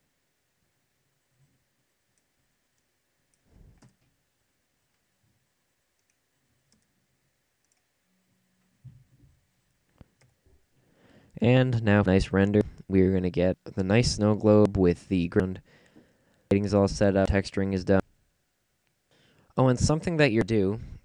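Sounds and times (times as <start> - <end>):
soft computer clicks: 6.0 - 6.9, 7.6 - 7.9.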